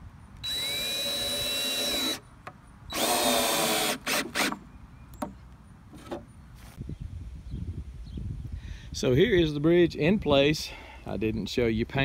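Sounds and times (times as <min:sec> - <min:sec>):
cordless drill driving screw: 0:00.4 - 0:02.2, 0:02.9 - 0:04.6.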